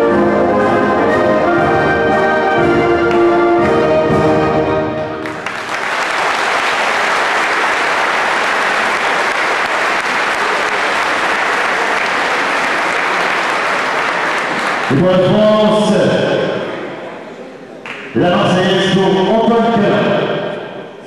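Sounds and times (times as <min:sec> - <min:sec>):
brass and orchestral anthem: 0:00.0 - 0:05.7
crowd applauding: 0:05.2 - 0:15.8.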